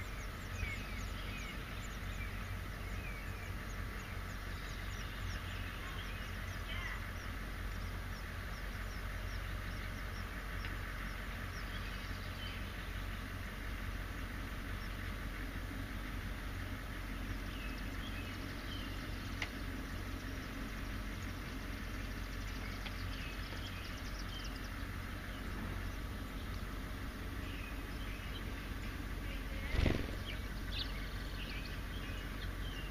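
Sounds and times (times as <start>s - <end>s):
bird chicks begging cheeps: 0.0s - 10.4s, 27.3s - 32.9s
low background rumble: 0.0s - 32.9s.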